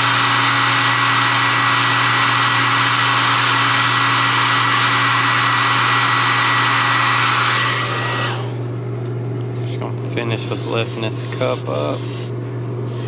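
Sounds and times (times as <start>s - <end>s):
heat gun fan whining: 0.0s - 13.0s.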